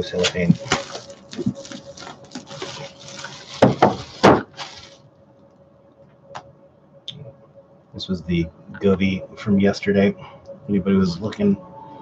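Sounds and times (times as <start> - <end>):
cellophane crinkling and crackling: 0.0 - 5.1
loud crunches: 0.1 - 5.0.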